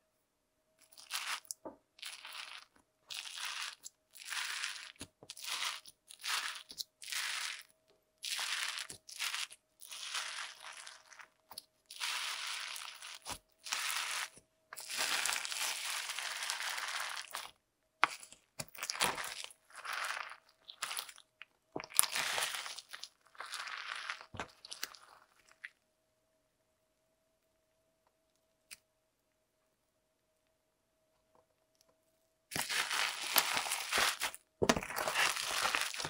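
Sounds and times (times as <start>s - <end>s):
crunchy slime being squeezed: 0.8s - 25.7s, 32.5s - 36.0s.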